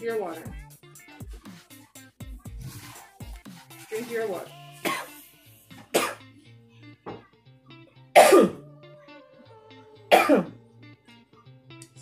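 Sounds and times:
woman coughing hard: 4.8 - 5.2, 5.9 - 6.2, 8.2 - 8.6, 10.1 - 10.6.

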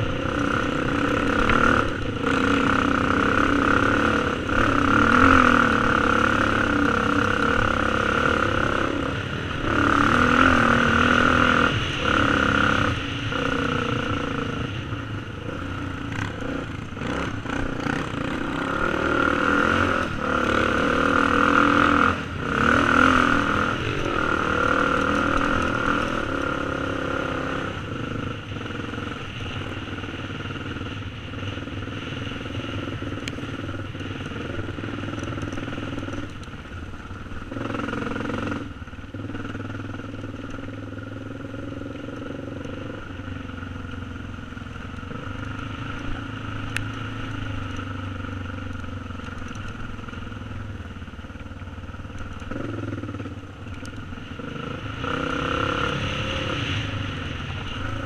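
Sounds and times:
dirt bike engine revving: 0.0 - 29.8, 52.2 - 58.0.

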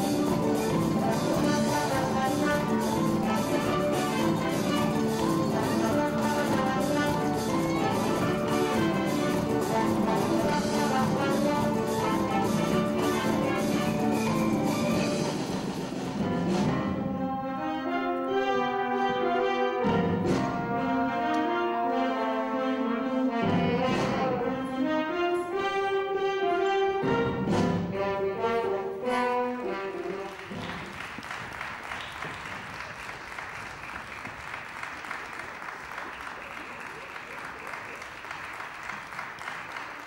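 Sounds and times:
live band playing chords: 0.0 - 22.0
audience applause: 29.6 - 40.0.

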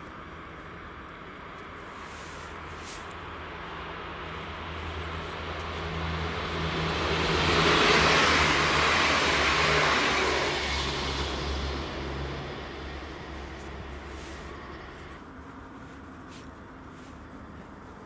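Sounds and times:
train wheels rushing on rails: 6.0 - 15.1
low steady hum: 9.9 - 18.0.

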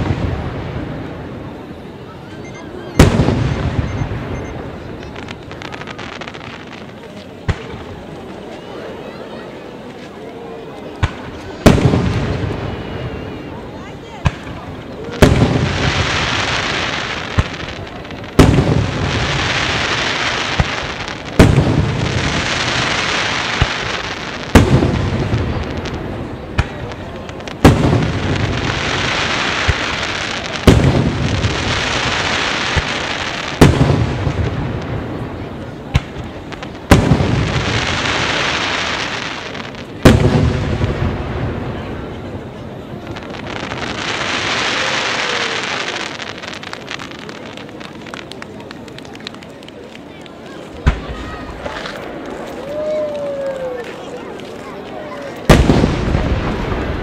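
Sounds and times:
long hiss of burning stars: 0.0 - 57.0
firework shells booming: 11.0 - 13.1, 14.2 - 49.8, 55.4 - 57.0.

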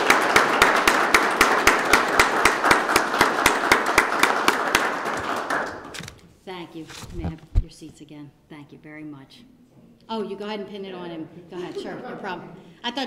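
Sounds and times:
audience applauding: 0.0 - 6.0
loud close hand claps: 0.0 - 6.0.

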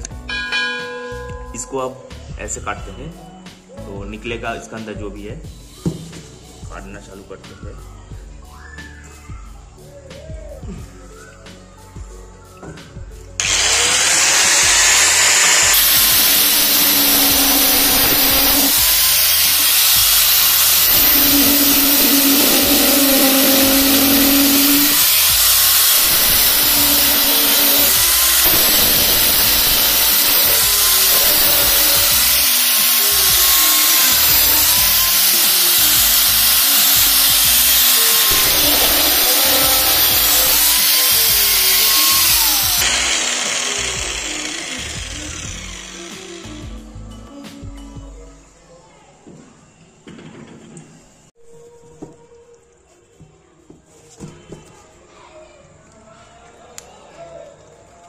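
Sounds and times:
angle grinder cutting metal: 13.4 - 46.8.

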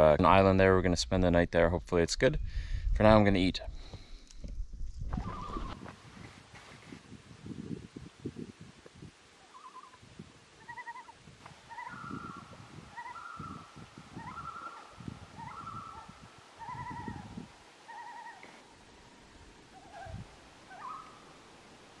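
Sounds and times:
loons calling: 5.1 - 5.8, 9.4 - 10.0, 10.6 - 21.4.

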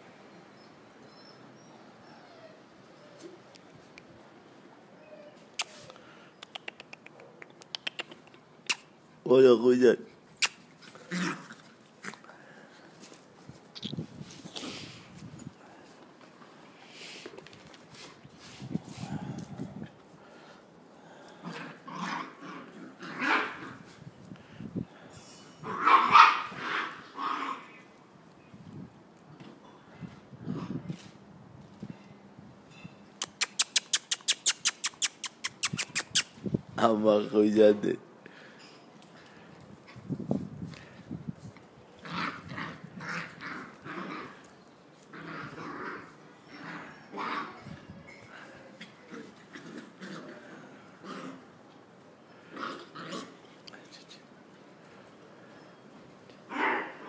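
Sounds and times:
puppies growling and yapping: 10.4 - 12.6, 21.2 - 24.0, 42.0 - 51.7, 52.3 - 53.6.

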